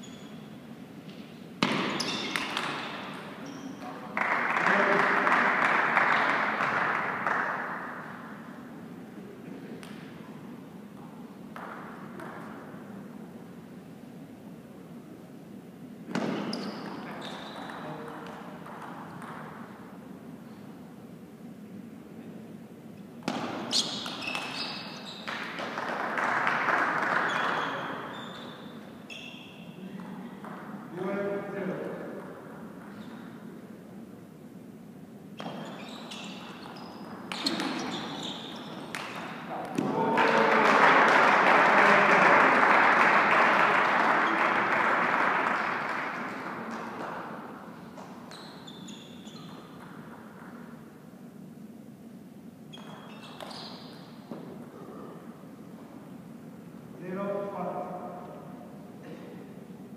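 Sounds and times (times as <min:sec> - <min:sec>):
shoe squeaks on floor: 0:00.0 - 0:00.7, 0:01.6 - 0:04.0, 0:16.2 - 0:18.0, 0:23.6 - 0:25.4, 0:27.2 - 0:29.9, 0:32.9 - 0:33.3, 0:35.4 - 0:39.5, 0:47.9 - 0:50.6, 0:52.7 - 0:54.5
crowd applauding: 0:04.1 - 0:07.9, 0:25.3 - 0:27.9, 0:39.9 - 0:47.2.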